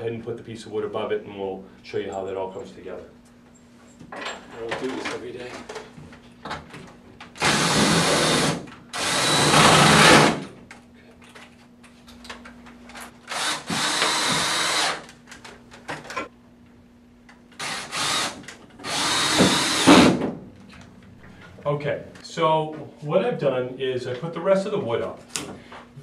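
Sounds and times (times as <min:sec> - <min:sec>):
cordless drill driving screws: 0:07.4 - 0:10.4, 0:13.3 - 0:15.0, 0:17.6 - 0:20.2.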